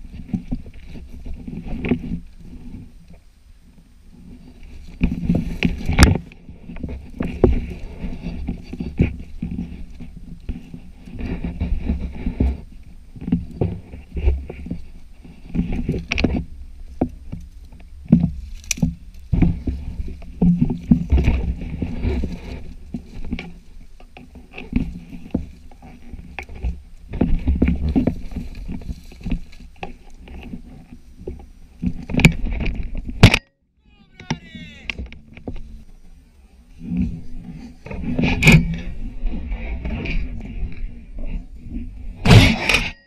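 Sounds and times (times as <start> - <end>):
branches scraping against clothing: 0.0 - 3.3, 4.0 - 43.0
twigs cracking: 4.4 - 33.4
footsteps: 34.0 - 43.0.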